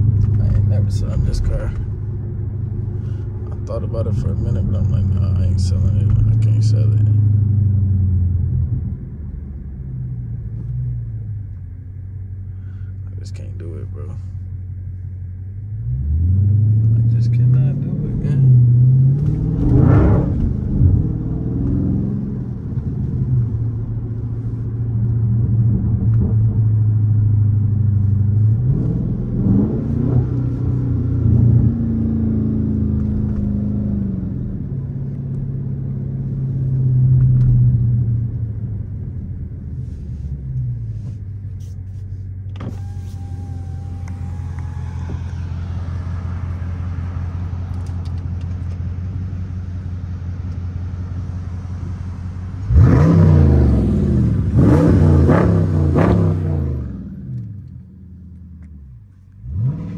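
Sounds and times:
car engine accelerating and idling: 0:00.0 - 0:59.9
outside noise: 0:00.0 - 0:59.9
power window motor whining: 0:42.5 - 0:46.6.

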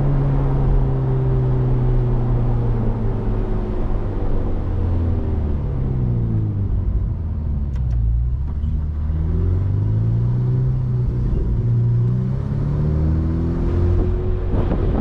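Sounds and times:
sports car engine cruising: 0:00.0 - 0:15.0.

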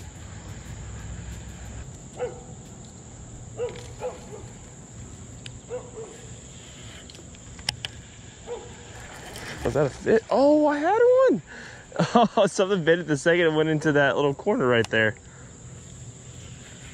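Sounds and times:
sharp clicks: 0:07.0 - 0:08.0.

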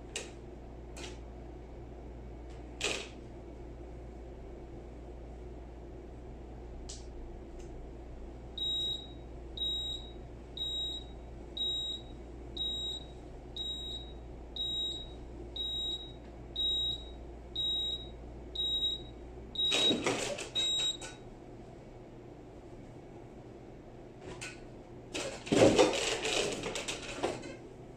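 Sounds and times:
steady low hum: 0:00.0 - 0:19.8.

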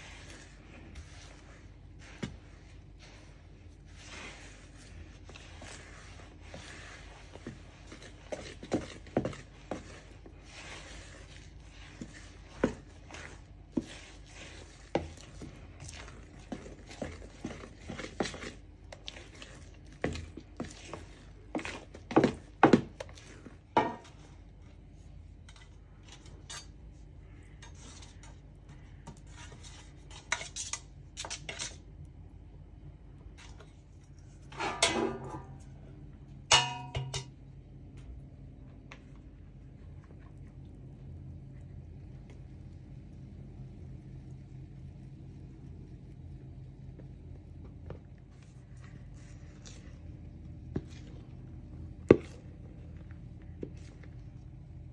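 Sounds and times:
utensil scraping bowl: 0:00.0 - 0:24.4, 0:27.5 - 0:31.8.

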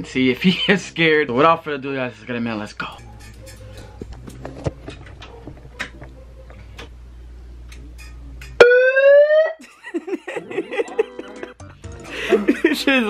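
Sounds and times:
megaphone siren wail: 0:08.6 - 0:09.6.

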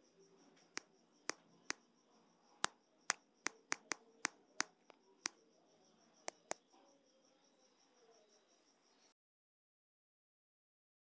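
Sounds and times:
sharp clicks: 0:03.5 - 0:05.0, 0:06.3 - 0:06.6.

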